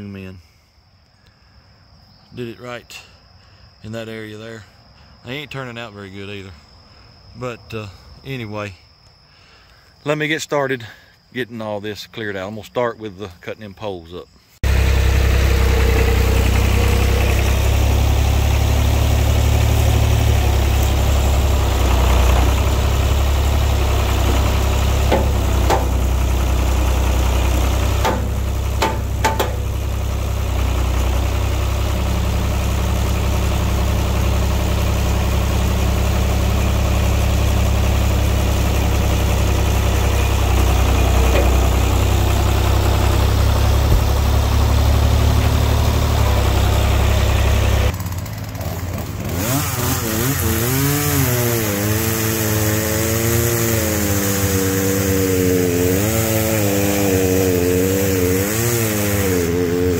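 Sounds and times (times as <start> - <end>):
engine running steadily: 14.6 - 59.9
short clicks or knocks: 24.1 - 26.2, 28.0 - 29.7, 40.9 - 41.8.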